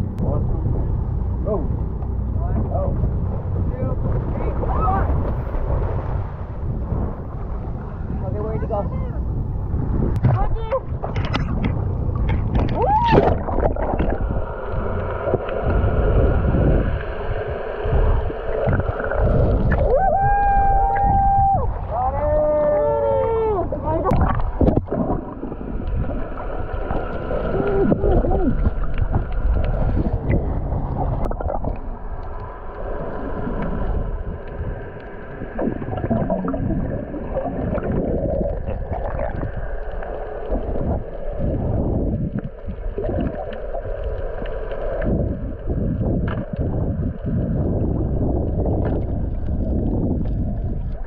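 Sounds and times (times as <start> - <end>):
underwater rush of water: 0.0 - 51.0
bubbles gurgling: 11.0 - 17.0, 18.0 - 21.4, 23.6 - 51.0.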